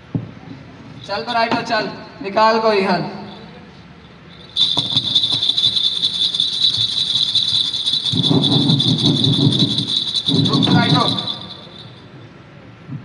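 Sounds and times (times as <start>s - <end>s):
high-pitched buzzing rattle: 3.2s - 12.1s.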